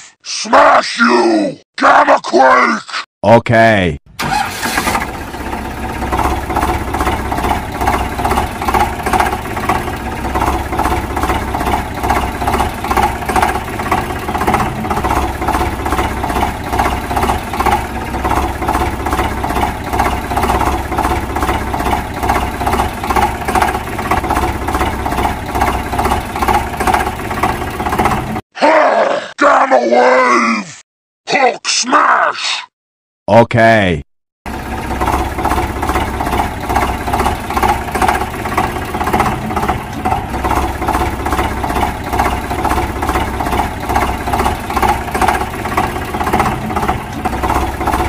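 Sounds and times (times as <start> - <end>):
tractor engine chugging: 4.2 - 28.4, 34.5 - 48.0.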